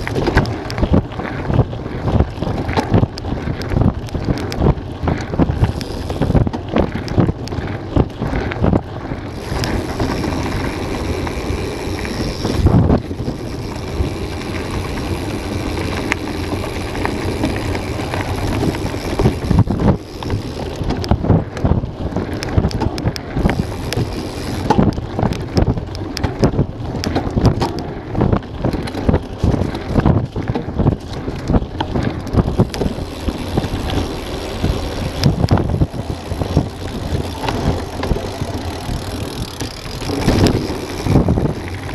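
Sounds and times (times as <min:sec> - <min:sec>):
bike knocking and rattling: 0:00.0 - 0:41.9
tyres rumbling on dirt: 0:00.0 - 0:41.9
wind buffeting microphone: 0:00.0 - 0:41.9.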